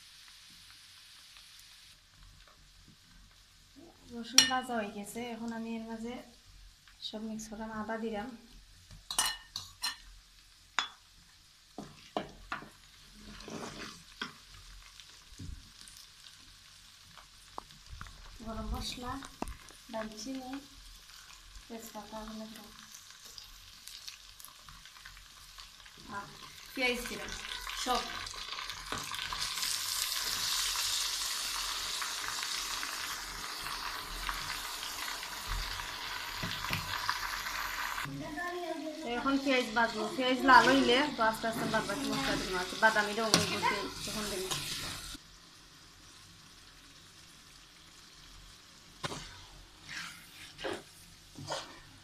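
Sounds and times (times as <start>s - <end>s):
paste sizzling in oil in a wok: 0.0s - 52.0s
spatula scraping and stirring: 11.8s - 14.6s, 26.4s - 30.6s, 39.5s - 45.2s, 49.0s - 52.0s.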